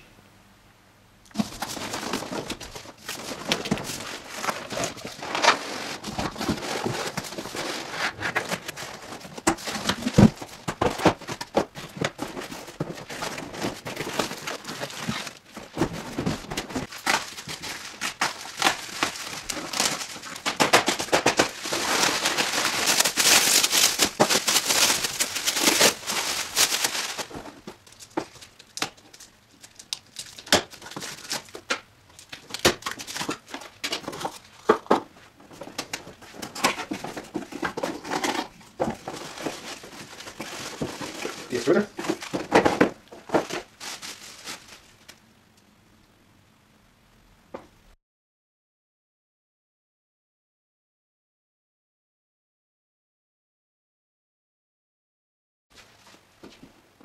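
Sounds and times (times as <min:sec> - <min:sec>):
cardboard and bubble wrap rustling: 0:01.3 - 0:45.2.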